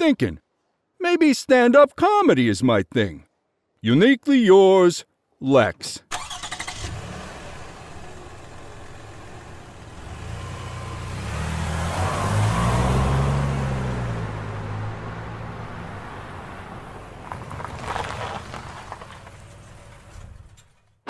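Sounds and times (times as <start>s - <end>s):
car engine driving past: 6.7s - 20.0s.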